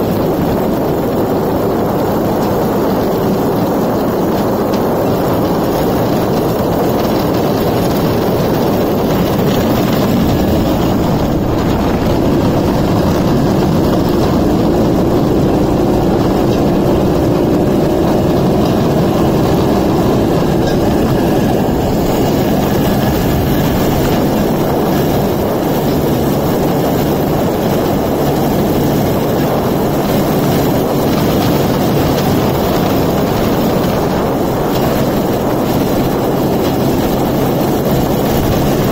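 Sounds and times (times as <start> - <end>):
steel wheels rolling on rails: 0.0 - 38.9
two-stroke engine running: 0.0 - 38.9.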